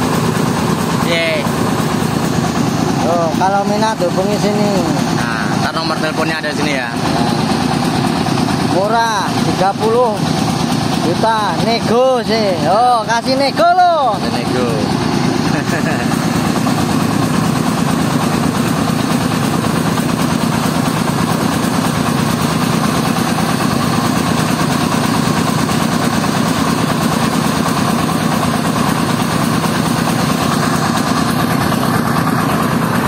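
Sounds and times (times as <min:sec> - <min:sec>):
rice mill engine humming: 0:00.0 - 0:33.0.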